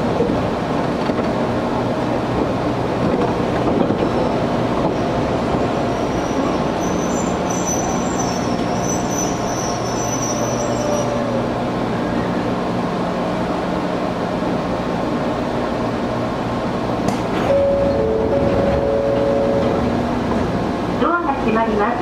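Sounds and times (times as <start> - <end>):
train wheels rumbling on rail: 0.0 - 22.0
high-pitched wheel squeal: 5.9 - 12.5.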